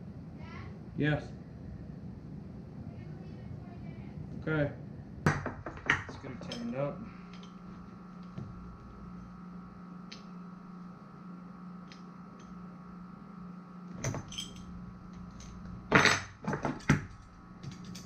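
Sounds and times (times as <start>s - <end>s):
steady low hum: 0.0s - 18.0s
metal fitting clinks: 6.4s - 7.6s, 14.1s - 18.0s.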